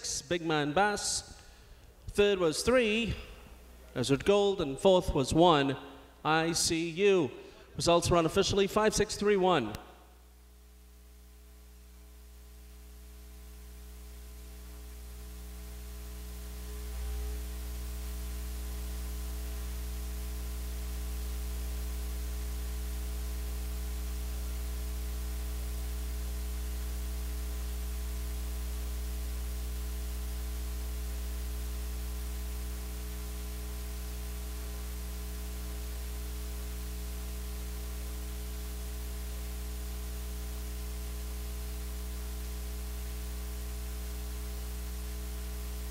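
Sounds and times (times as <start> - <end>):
electrical mains hum: 0.0 - 45.9
static hiss: 10.0 - 45.9.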